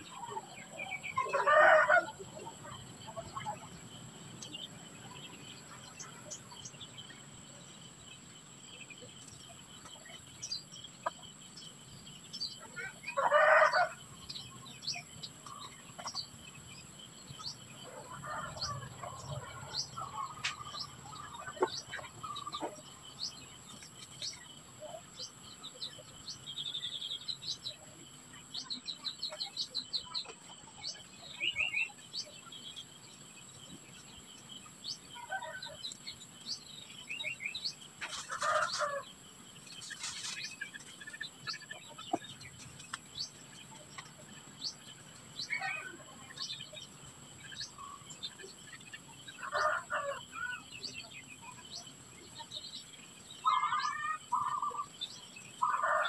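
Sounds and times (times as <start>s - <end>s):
small birds chirping: 0.0s - 56.0s
rooster crowing: 1.2s - 2.2s, 13.2s - 14.0s.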